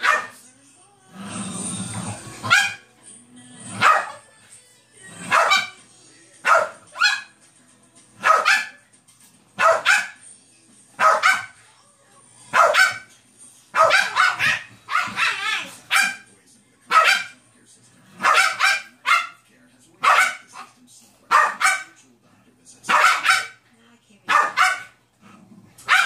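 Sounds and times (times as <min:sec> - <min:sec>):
puppy barking: 0:00.0 - 0:00.4, 0:02.4 - 0:02.8, 0:03.8 - 0:04.2, 0:05.3 - 0:05.8, 0:06.4 - 0:07.3, 0:08.2 - 0:08.8, 0:09.6 - 0:10.2, 0:11.0 - 0:11.6, 0:12.5 - 0:13.1, 0:13.8 - 0:16.3, 0:16.9 - 0:17.4, 0:18.2 - 0:19.4, 0:20.0 - 0:20.7, 0:21.3 - 0:22.0, 0:22.9 - 0:23.6, 0:24.3 - 0:25.0.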